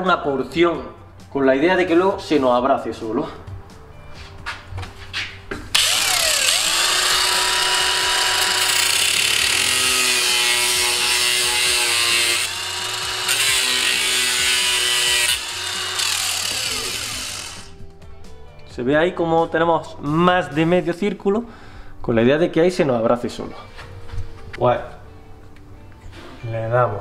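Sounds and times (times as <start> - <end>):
angle grinder cutting metal pipe: 5.7 - 17.8.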